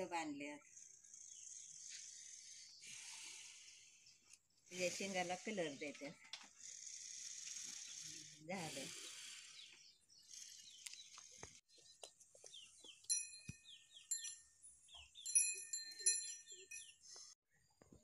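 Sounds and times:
small bells chiming: 13.0 - 17.4.

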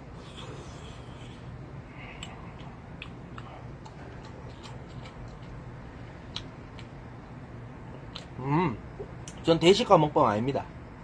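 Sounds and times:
low hum: 0.0 - 9.8
chewing: 0.2 - 5.6, 7.9 - 8.4.

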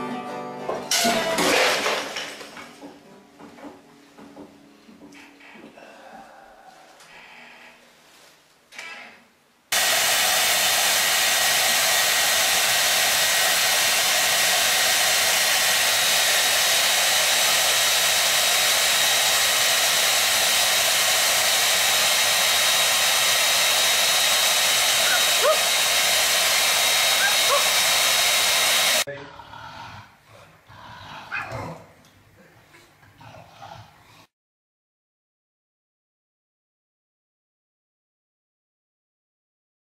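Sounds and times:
hair dryer blowing: 9.7 - 29.1.

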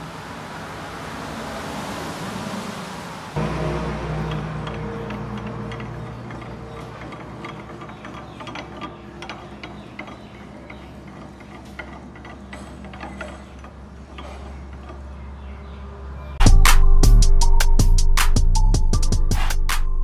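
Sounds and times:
lathe mechanism ticking: 3.4 - 16.2.

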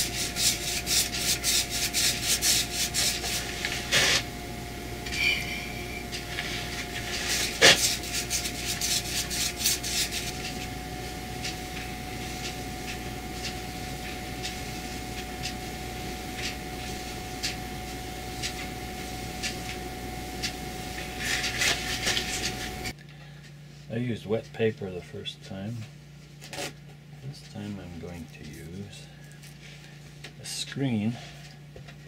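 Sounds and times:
paintbrush scratchy rubbing: 0.0 - 4.2, 5.2 - 12.6
faint steady hum: 0.0 - 26.5.

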